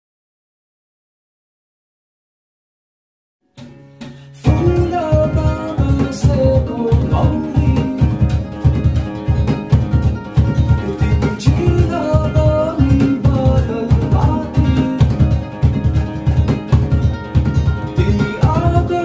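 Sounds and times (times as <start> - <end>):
acoustic guitars playing: 3.4 - 19.0
man singing: 4.4 - 8.5, 10.8 - 15.5, 17.9 - 19.0
hand drum beat: 4.4 - 19.0.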